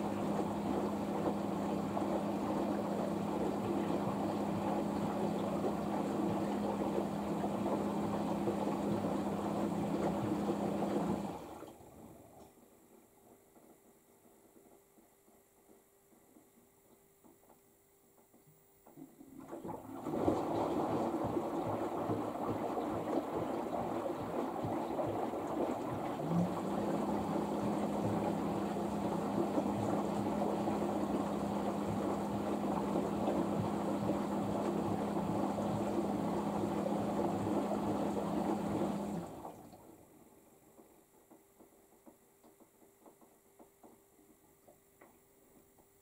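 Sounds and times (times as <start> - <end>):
water rushing into washing machine: 0.0 - 13.9, 18.8 - 44.9
steady low hum: 20.0 - 39.6.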